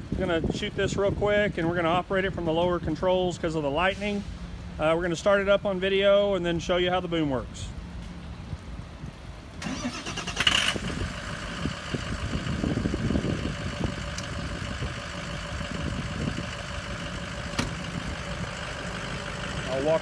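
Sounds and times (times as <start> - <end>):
engine starter cranking: 9.6 - 11.6
truck engine idling: 9.6 - 20.0.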